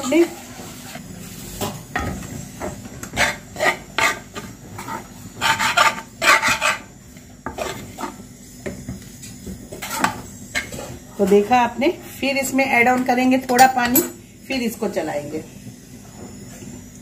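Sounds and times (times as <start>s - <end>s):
spoon scraping metal pan: 3.1s - 6.9s.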